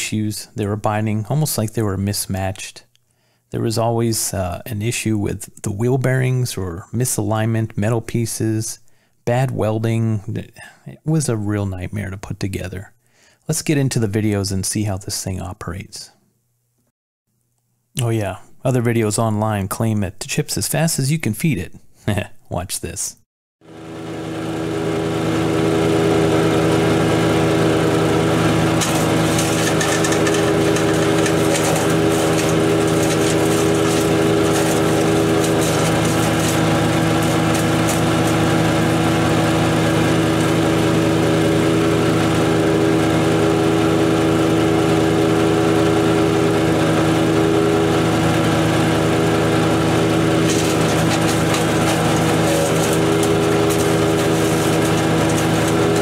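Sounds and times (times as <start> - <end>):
wood chipper engine running: 23.6 - 56.0
crackling of wood being chipped: 28.8 - 38.5, 50.5 - 56.0.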